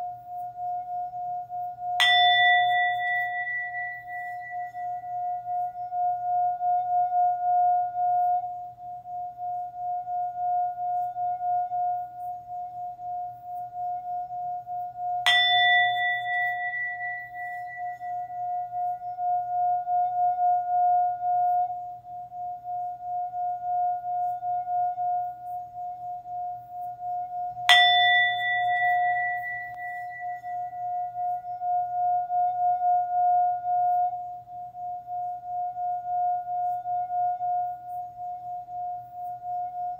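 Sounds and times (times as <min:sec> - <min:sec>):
singing bowl humming: 0:00.0 - 0:39.9
singing bowl strike: 0:01.9 - 0:08.6, 0:15.1 - 0:25.8, 0:26.4 - 0:34.2.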